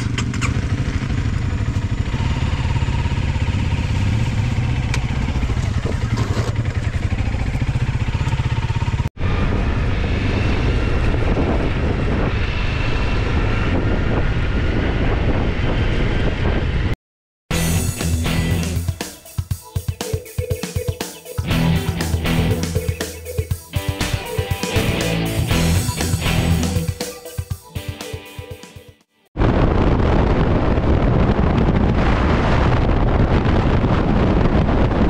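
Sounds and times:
motorcycle engine running: 0.0 - 16.9, 17.5 - 27.5.

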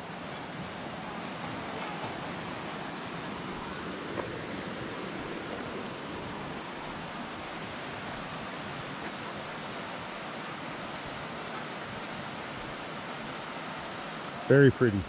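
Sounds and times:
creek rushing over rocks: 0.0 - 15.0.

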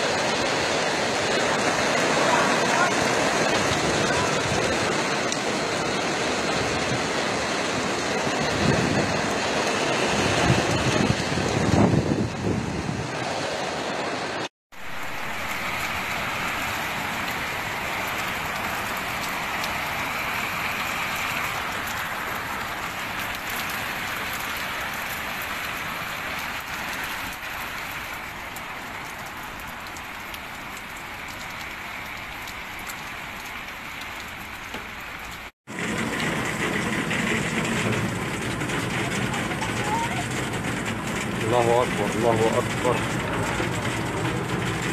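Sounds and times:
heavy rain pouring: 0.0 - 44.9.

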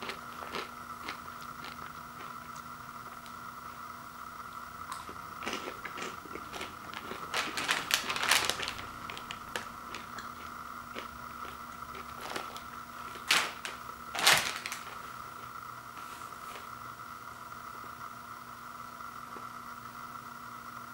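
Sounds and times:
plastic snack bag crinkling: 0.0 - 2.6, 5.0 - 16.8
faint steady hum: 0.0 - 20.9.

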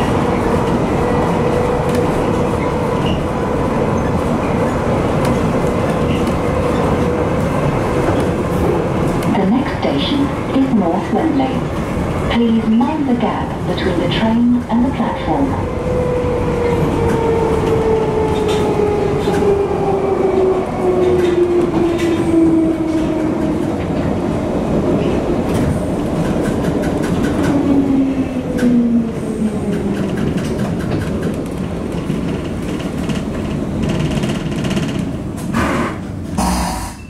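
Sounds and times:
train wheels rumbling on rail: 0.0 - 37.0
train motor whine: 35.6 - 37.0.

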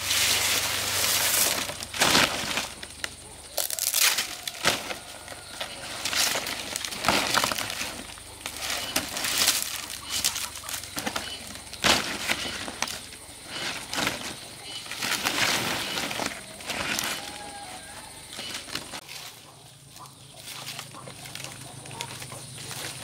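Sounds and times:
palm leaves rustling and swishing: 0.0 - 23.0.

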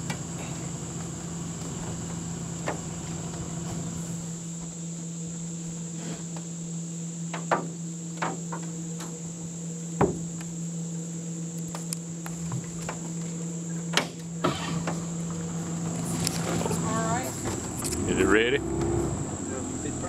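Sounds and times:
insects buzzing: 0.0 - 20.0
low hum: 8.8 - 20.0.

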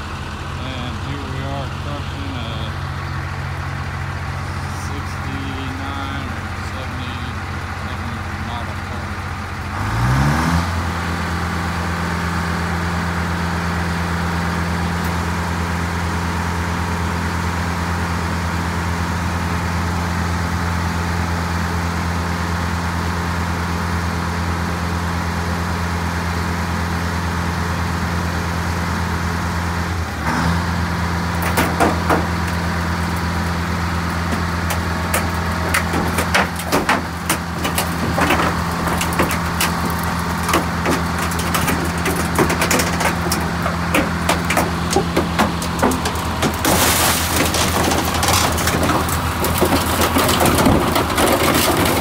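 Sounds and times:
car crusher engine running: 0.0 - 52.0
sheet metal cracking and crunching: 31.2 - 52.0.

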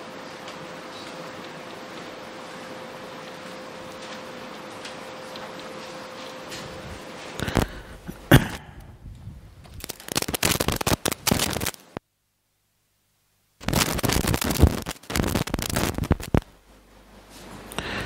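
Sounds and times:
paper pages rustling: 9.7 - 12.0, 13.6 - 16.5
sharp clicks: 9.7 - 12.0.

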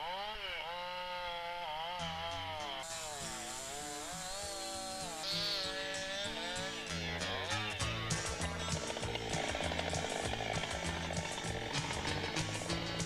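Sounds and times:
chainsaw cutting tree: 0.0 - 13.0
background music with low bass: 5.2 - 13.0.

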